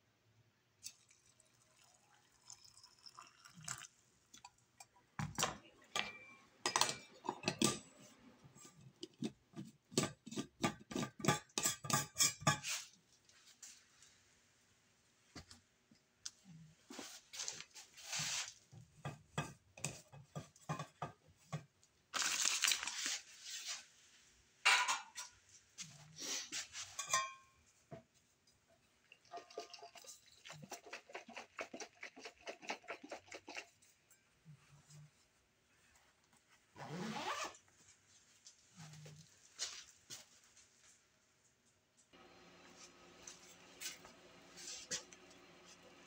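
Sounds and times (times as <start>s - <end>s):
kitchen clicks and clatters: 4.8s - 8.0s, 9.0s - 12.9s, 19.0s - 21.7s, 24.7s - 25.4s, 26.8s - 27.5s.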